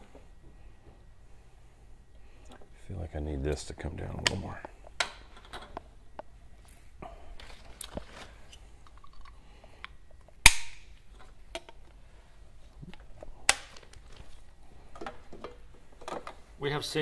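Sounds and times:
blocks snapping together: 10.4s - 10.8s.

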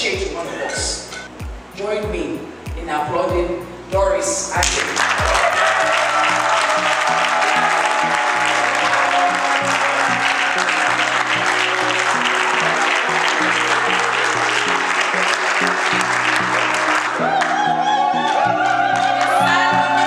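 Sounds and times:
music with stepping bass line: 0.0s - 4.1s, 5.2s - 5.4s
crowd applauding: 4.6s - 20.0s.

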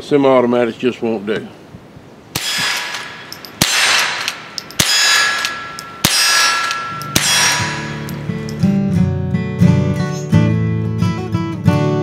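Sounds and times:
rifle shots: 2.4s - 8.4s
bullets hitting steel targets: 2.4s - 8.8s
strummed acoustic guitar music: 7.1s - 12.0s.

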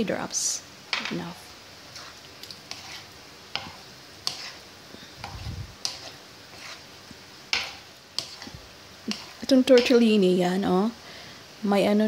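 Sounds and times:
utensil scraping frying pan: 0.9s - 10.2s.

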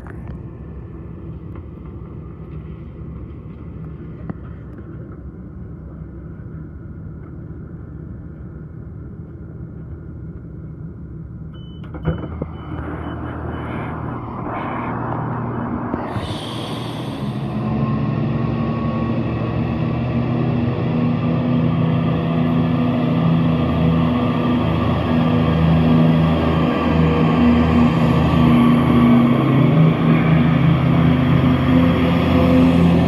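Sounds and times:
door signal beeps: 11.5s - 14.3s
diesel train rumble: 12.1s - 33.0s.

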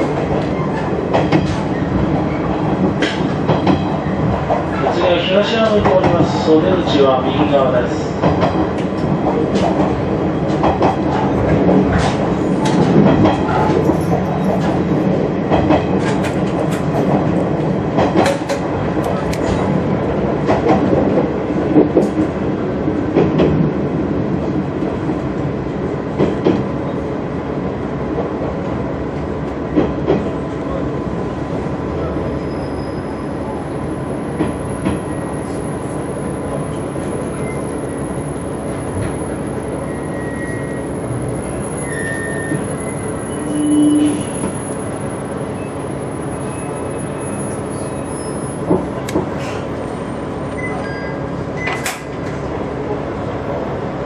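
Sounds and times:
train wheels clicking over rail joints: 0.0s - 5.0s, 8.2s - 22.3s
train running hum: 0.0s - 54.0s.

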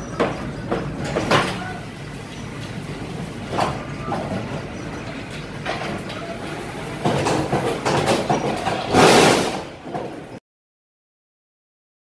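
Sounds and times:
machine clanks: 2.6s - 10.3s.

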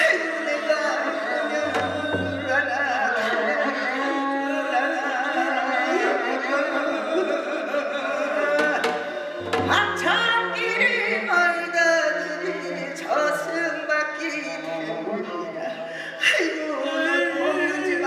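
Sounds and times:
voice singing with wide vibrato: 0.0s - 14.0s
drum struck: 1.6s - 3.2s, 8.6s - 10.7s
accompanying instruments: 1.6s - 3.8s, 8.5s - 11.1s.

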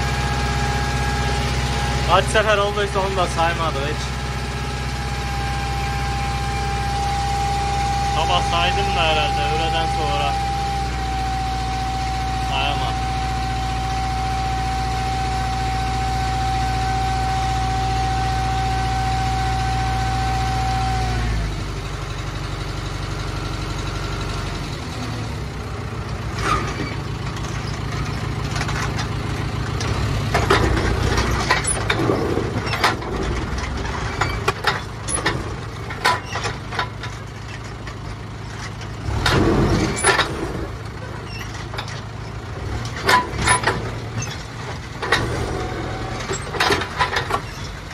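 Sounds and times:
hydraulic whine: 0.0s - 21.6s, 38.9s - 47.9s
tractor engine running: 0.0s - 47.9s
trailer knocking and rattling: 24.9s - 47.9s.

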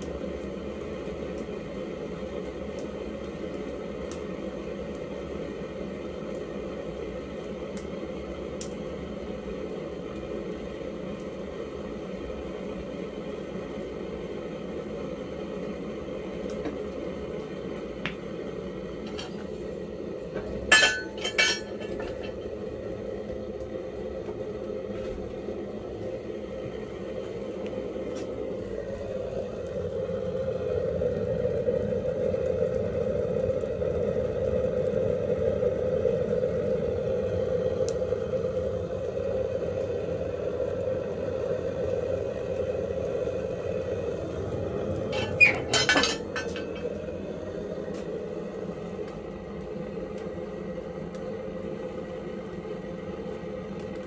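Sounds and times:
metal clanks: 20.7s - 22.4s, 45.1s - 46.9s.

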